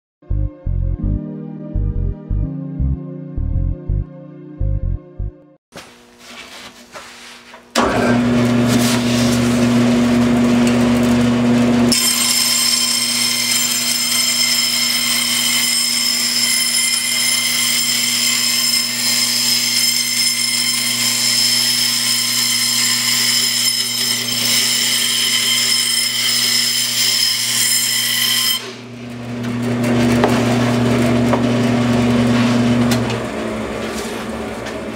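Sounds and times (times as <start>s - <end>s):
band saw humming: 7.7s - 34.9s
saw blade cutting stone panel: 11.7s - 28.9s.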